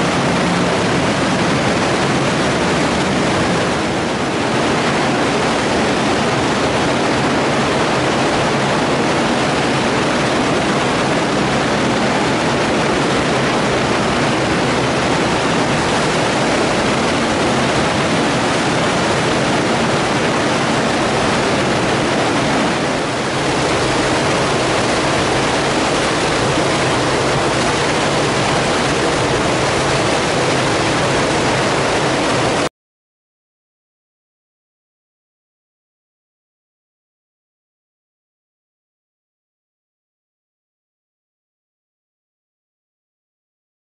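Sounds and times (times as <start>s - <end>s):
water rushing through pipes: 0.0s - 32.7s.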